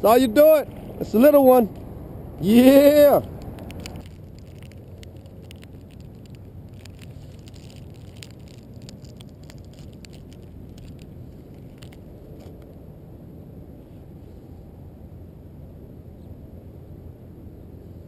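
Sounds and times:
low rumble of water and wind: 0.0s - 18.0s
plastic package clicks and rustles: 3.2s - 12.7s.

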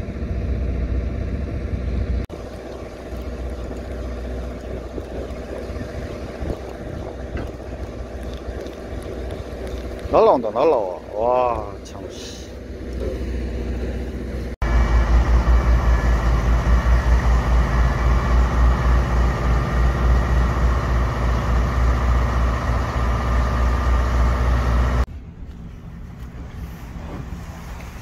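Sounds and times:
crane diesel engine under load: 0.0s - 28.0s
wind noise: 1.3s - 10.3s.

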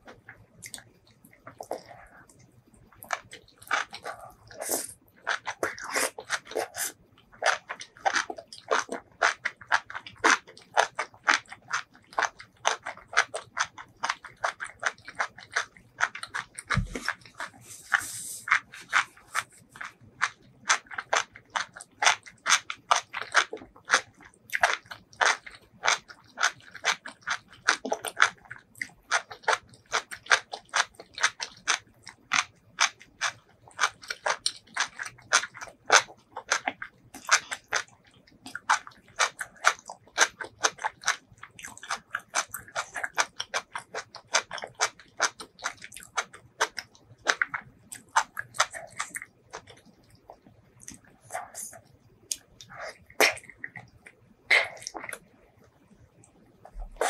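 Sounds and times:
person chewing soft food: 0.0s - 57.0s.

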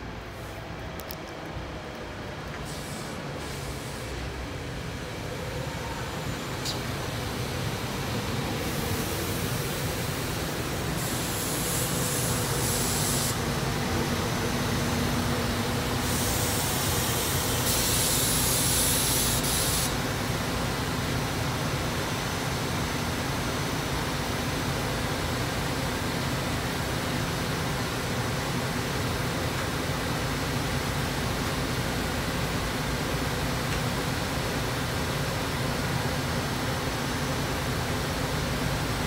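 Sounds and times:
train rumble: 0.0s - 19.0s
loud air hissing: 2.6s - 4.4s, 5.0s - 20.2s.

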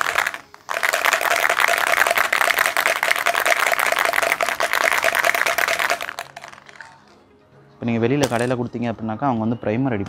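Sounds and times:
spray can ball rattling: 0.0s - 7.1s, 8.2s - 8.6s.

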